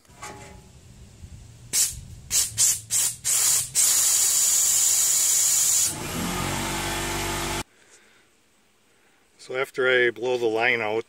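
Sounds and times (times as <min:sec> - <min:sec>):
compressed air blowgun hissing: 0:01.6 - 0:06.0.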